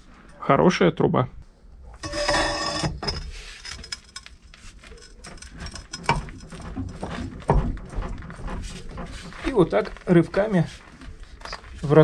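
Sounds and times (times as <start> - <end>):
steel tools clinking: 2.0 - 6.4.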